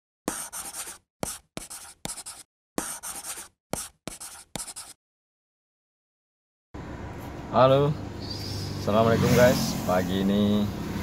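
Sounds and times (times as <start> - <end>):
pen scribbling on paper: 0.3 - 5.0.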